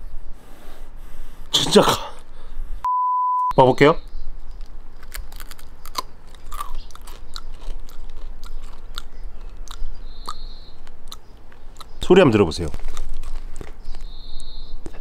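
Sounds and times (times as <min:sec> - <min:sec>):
person chewing crunchy food: 0:04.6 - 0:12.0, 0:12.6 - 0:15.0.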